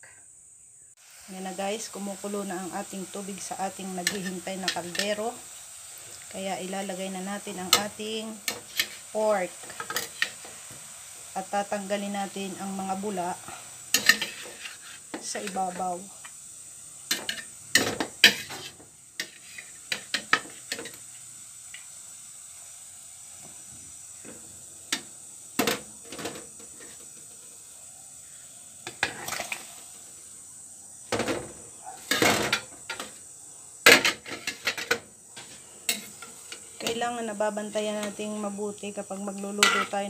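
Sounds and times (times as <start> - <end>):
metal spoon scraping pot: 13.9 - 15.6.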